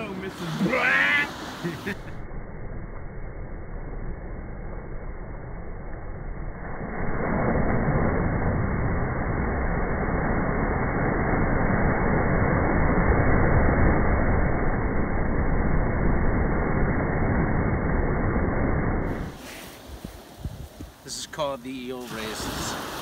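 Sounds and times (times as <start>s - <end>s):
small waves breaking on beach: 0.0s - 2.1s, 19.1s - 23.0s.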